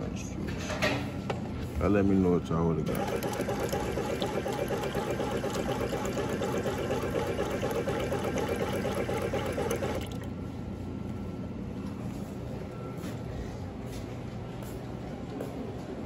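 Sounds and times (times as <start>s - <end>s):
juice dispenser running: 2.8s - 10.4s
juice pouring into paper cup: 2.9s - 10.4s.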